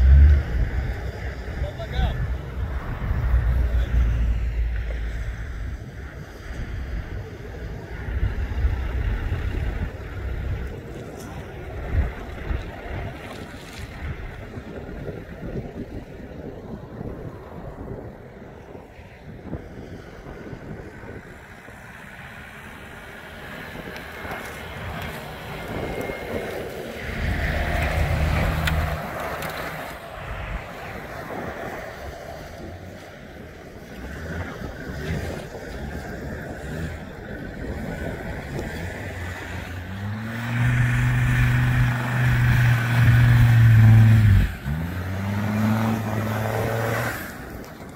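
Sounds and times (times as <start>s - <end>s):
diesel engines working hard: 0.0s - 47.9s.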